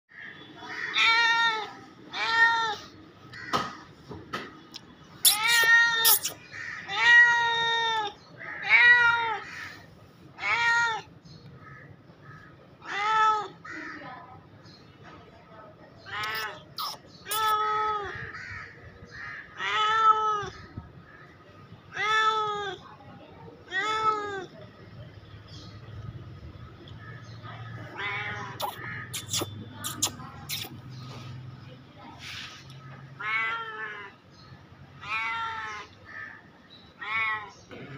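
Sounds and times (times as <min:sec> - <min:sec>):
cat meowing: 0:05.2 - 0:09.4.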